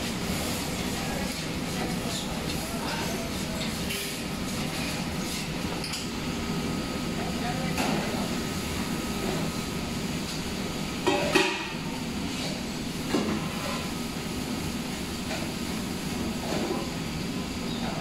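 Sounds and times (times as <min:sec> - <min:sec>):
metal pots clanking on counter: 0:11.0 - 0:11.8.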